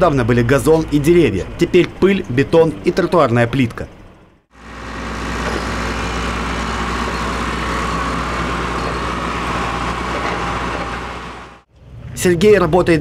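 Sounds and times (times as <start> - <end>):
excavator diesel engine running: 4.5 - 11.7.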